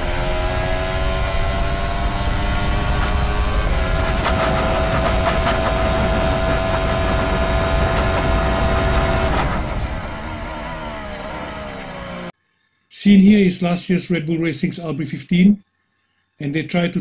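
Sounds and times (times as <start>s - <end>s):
race car engine at speed: 0.0s - 12.3s
splitter scraping on track: 0.0s - 12.3s.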